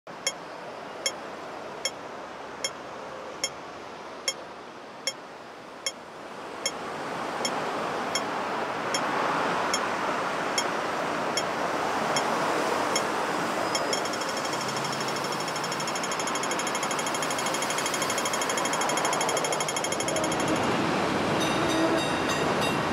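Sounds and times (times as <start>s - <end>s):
street and traffic noise: 0.1s - 22.9s
crossing signal ticking: 12.1s - 12.3s, 13.7s - 20.8s.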